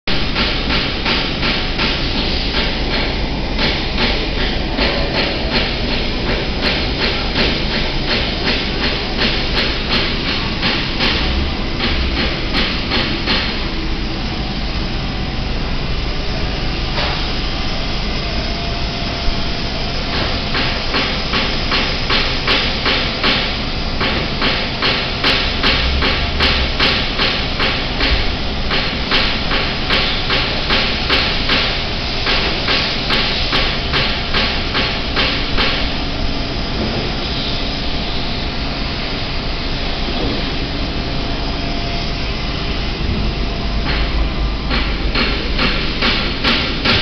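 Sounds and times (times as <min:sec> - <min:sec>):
loud machinery noise: 0:00.1 - 0:47.0
rapid sharp knocks: 0:00.2 - 0:13.6, 0:20.1 - 0:35.9, 0:44.7 - 0:47.0.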